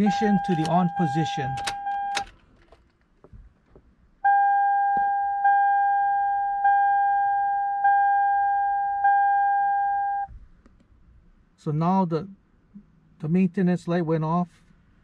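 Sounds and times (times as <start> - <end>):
dashboard warning chime: 0.0 - 2.3, 4.2 - 10.3.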